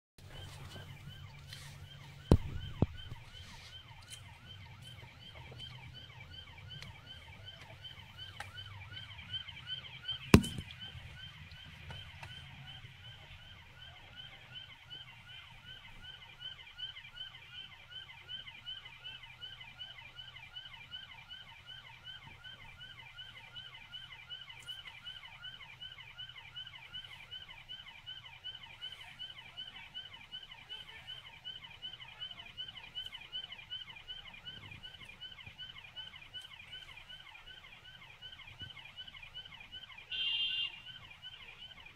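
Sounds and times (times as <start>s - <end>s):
police siren yelping: 0.2s - 41.9s
sharp knocks: 10.4s - 10.7s.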